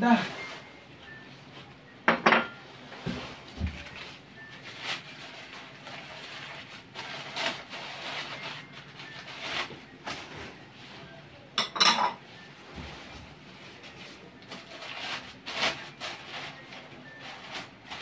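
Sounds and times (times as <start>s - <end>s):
ceramic plates clattering: 2.1s - 2.6s, 11.6s - 12.2s
newspaper crinkling and rustling: 3.2s - 10.6s, 12.9s - 18.0s.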